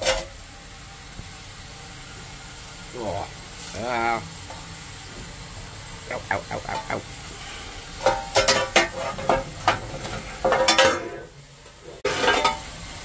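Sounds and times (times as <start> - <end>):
steady steam hiss: 0.0 - 13.0
shovel scraping metal: 12.0 - 12.7.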